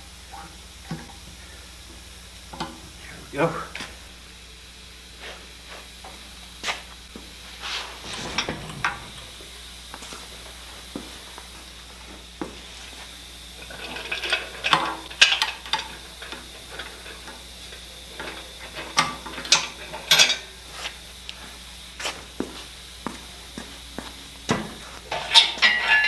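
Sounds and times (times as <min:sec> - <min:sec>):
metal clinks and clanks: 0:25.1 - 0:26.0.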